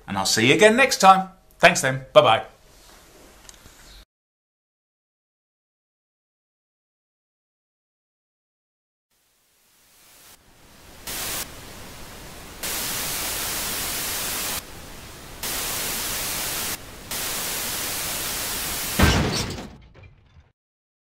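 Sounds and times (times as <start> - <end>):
television static hiss: 9.2 - 19.0.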